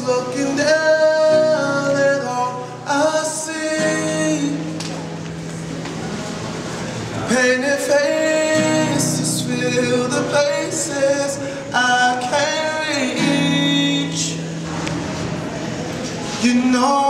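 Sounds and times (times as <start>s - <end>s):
man singing: 0.0s - 4.8s, 7.1s - 14.6s, 16.2s - 17.0s
classical guitar: 0.0s - 17.0s.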